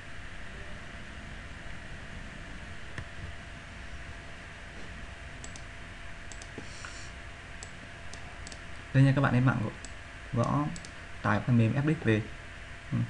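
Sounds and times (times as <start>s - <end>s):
steady background hiss: 0.0s - 13.0s
computer mouse clicking: 5.4s - 5.7s, 6.3s - 7.0s, 7.6s - 8.6s, 9.8s - 11.0s.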